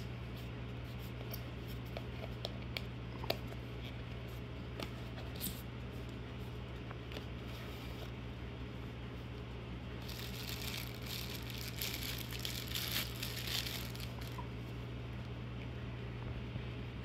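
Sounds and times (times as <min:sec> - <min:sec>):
plastic bag crinkling: 0:10.0 - 0:14.5.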